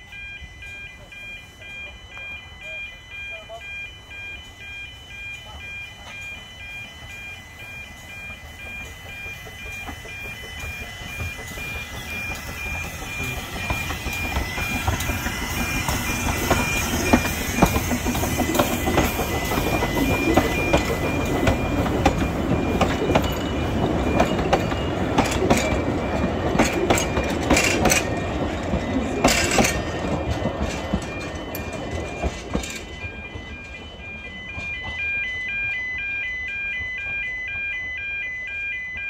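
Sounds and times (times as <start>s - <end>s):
electronic beeping tones: 0.0s - 39.0s
train rolling past: 0.0s - 39.0s
wheels clicking over rail joints: 8.2s - 35.8s.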